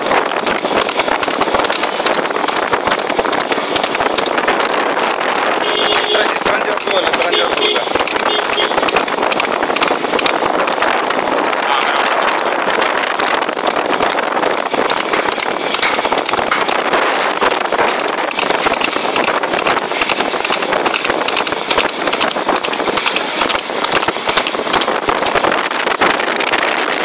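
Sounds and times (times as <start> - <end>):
horse hooves galloping on road: 0.0 - 27.0
steady rushing noise: 0.0 - 27.0.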